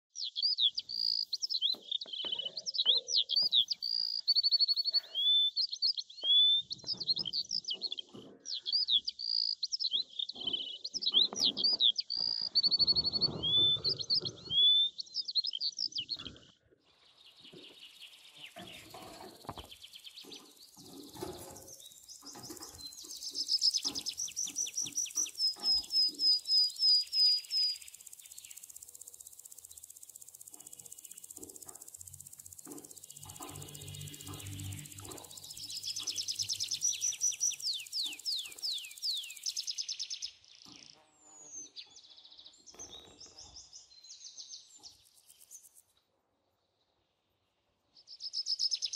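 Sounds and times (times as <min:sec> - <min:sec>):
budgerigar chirping and warbling: 0:00.6 - 0:05.6, 0:10.4 - 0:15.0.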